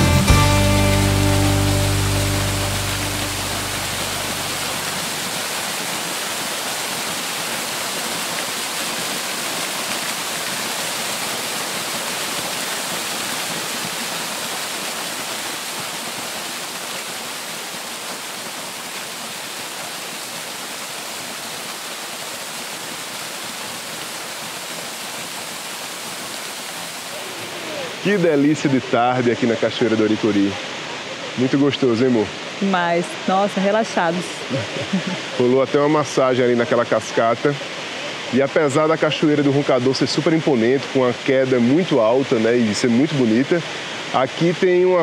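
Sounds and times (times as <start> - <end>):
waterfall rushing: 0.0 - 45.0.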